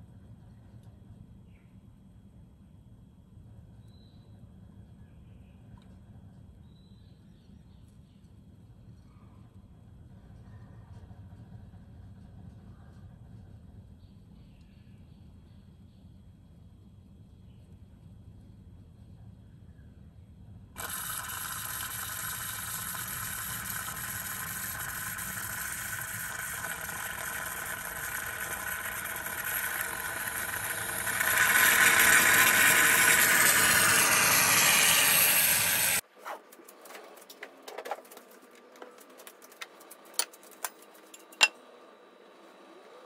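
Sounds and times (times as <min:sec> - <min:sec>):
moka pot hissing: 0:20.8 - 0:36.0.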